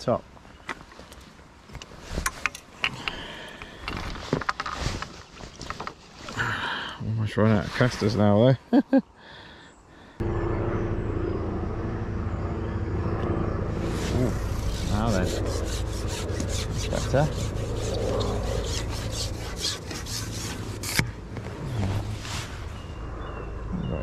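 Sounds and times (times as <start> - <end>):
steady low rumble: 10.2 - 24.0
fishing pole rubbing on jacket: 13.8 - 22.7.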